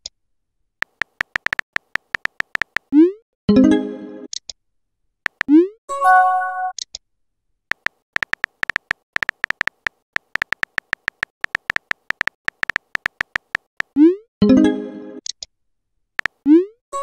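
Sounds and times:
keyboard tick clicks: 0.8 - 2.9, 5.3 - 5.6, 7.7 - 13.9.

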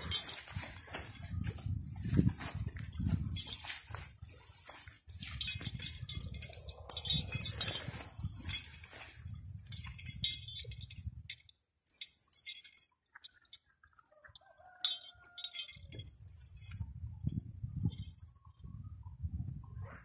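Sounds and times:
horse tearing and chewing grass: 0.0 - 5.8
tether chain clinking: 0.0 - 20.0.

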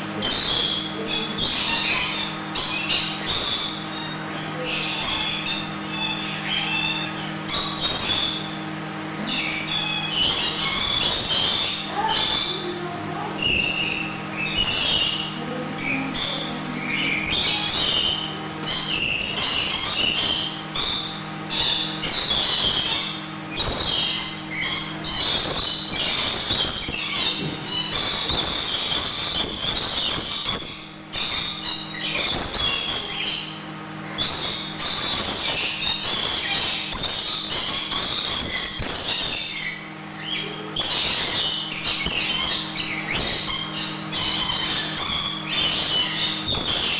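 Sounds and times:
lorikeets screeching and chattering: 0.0 - 46.9
steady low hum: 0.0 - 46.9.

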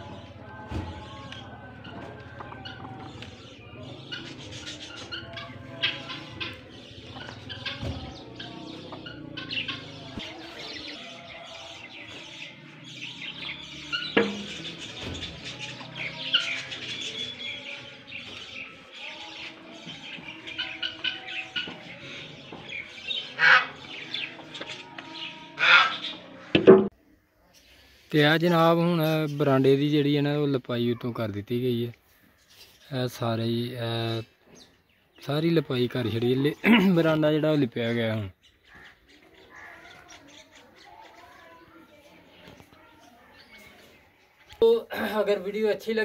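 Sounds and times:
hens clucking: 0.0 - 26.9
small birds chirping: 0.0 - 46.0.

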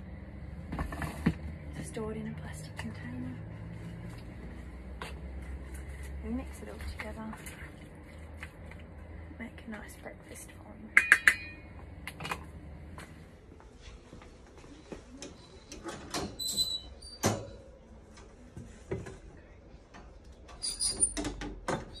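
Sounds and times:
high metallic rings: 11.0 - 11.8.

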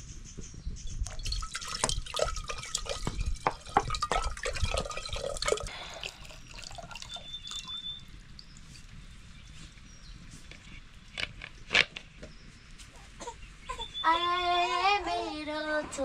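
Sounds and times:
water dripping and splashing: 1.0 - 9.9.

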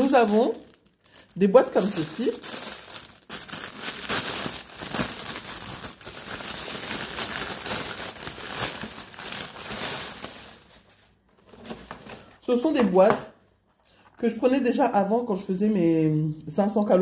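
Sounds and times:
plastic bag crinkling: 0.0 - 13.1.

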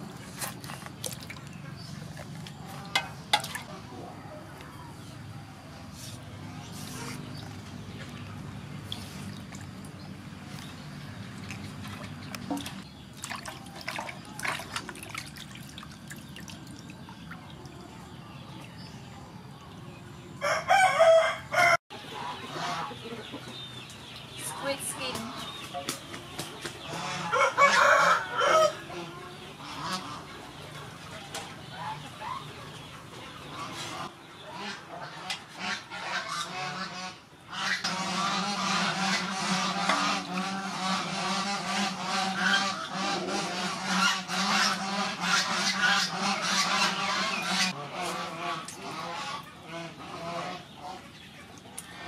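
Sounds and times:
water splashing and squelching: 0.0 - 4.1, 5.8 - 18.6
water splashing in metal basin: 2.7 - 3.8, 11.2 - 17.9.

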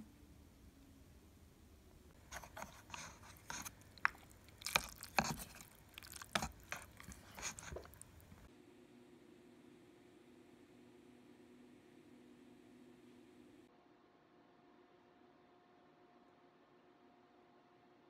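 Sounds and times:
noodles rustling and scraping: 2.2 - 8.5
chopsticks clicking in paper cup: 2.3 - 8.4.

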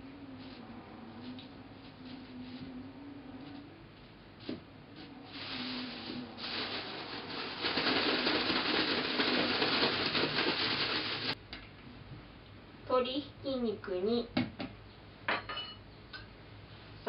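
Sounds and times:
plastic bag rustling: 5.3 - 11.4.

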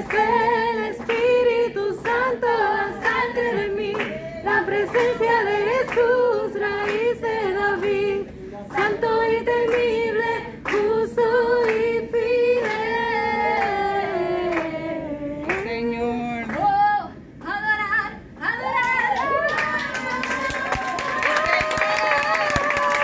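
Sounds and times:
woman singing: 0.0 - 15.7, 16.6 - 19.1.

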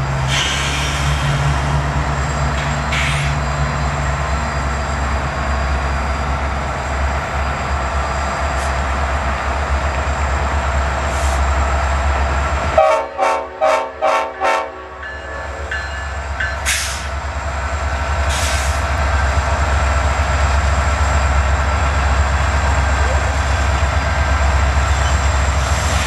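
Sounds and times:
brief air hisses: 0.3 - 1.8, 2.9 - 3.4, 16.6 - 17.2, 18.3 - 18.9
locomotive horn blasts: 12.8 - 15.7.

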